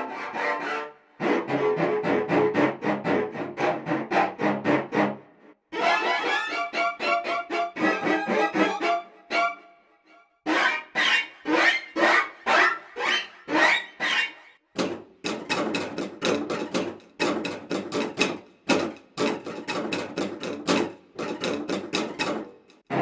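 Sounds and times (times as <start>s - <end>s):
cello percussive strikes: 14.8s - 22.9s.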